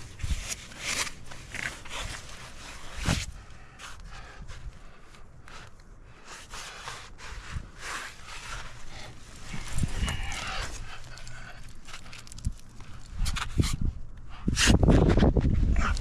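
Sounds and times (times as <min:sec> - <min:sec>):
person breathing hard: 0:08.4 - 0:12.9.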